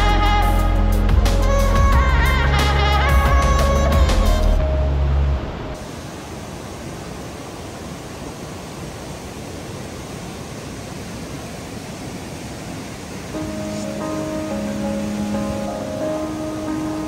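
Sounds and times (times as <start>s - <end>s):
background music: 0.0s - 5.8s, 13.4s - 17.0s
water rushing over rocks: 3.1s - 17.0s.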